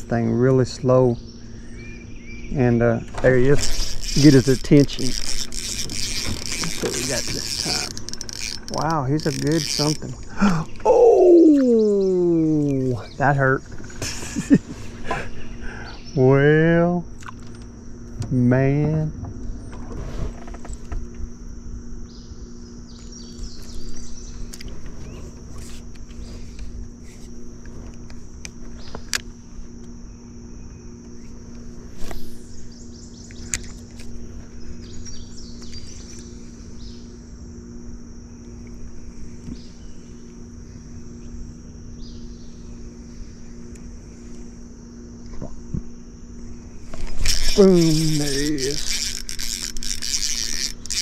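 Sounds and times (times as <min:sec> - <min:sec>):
insects buzzing: 0:00.0 - 0:51.0
low steady hum: 0:00.0 - 0:51.0
sharp clicks and knocks: 0:03.0 - 0:10.3.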